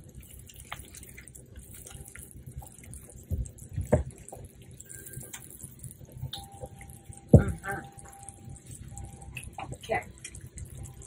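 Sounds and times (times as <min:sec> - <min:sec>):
spatula stirring sauce in a pan: 0:00.0 - 0:07.3.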